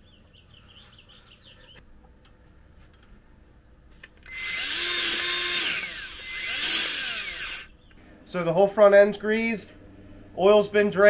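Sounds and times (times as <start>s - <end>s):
grease gun motor whirring: 4.2s - 7.7s.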